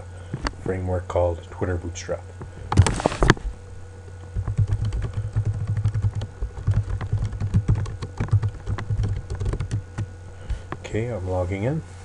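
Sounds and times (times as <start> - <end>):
typing on computer keyboard: 4.4 - 10.1.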